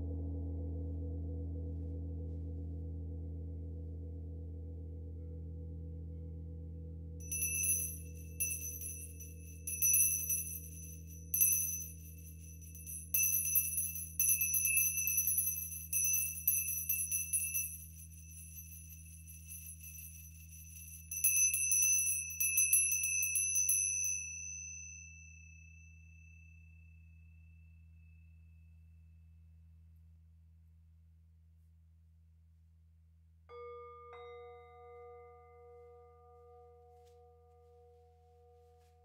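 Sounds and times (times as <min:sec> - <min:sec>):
gong ringing low hum: 0:00.0 - 0:22.7
hand bell ringing: 0:07.2 - 0:25.8.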